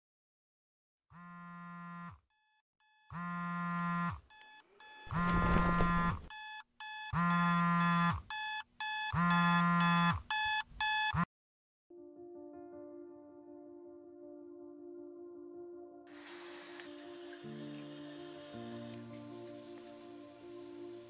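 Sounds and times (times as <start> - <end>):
phone alarm buzzy tone: 2.8 - 11.3
short high beeps: 4.4 - 11.3
hiss: 16.1 - 17.4.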